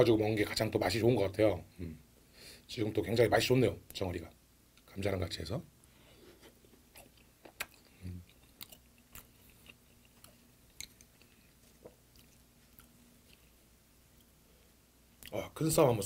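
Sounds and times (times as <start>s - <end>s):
man chewing food: 5.9s - 15.4s.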